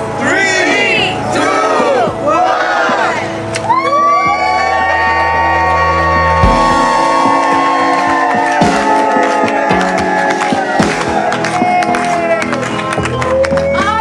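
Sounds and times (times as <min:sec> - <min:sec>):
background music with held notes: 0:00.0 - 0:14.0
sharp beats: 0:06.2 - 0:11.7.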